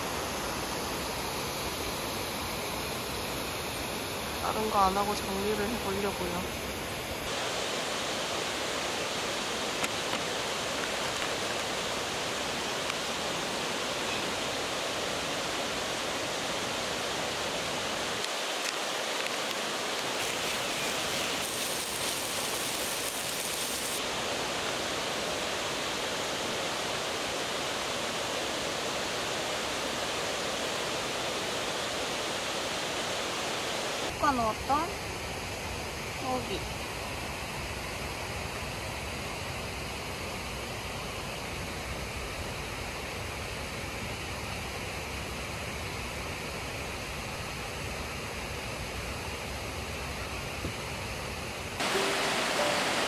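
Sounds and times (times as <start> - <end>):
stream rushing: 0.0 - 34.3, 51.7 - 53.0.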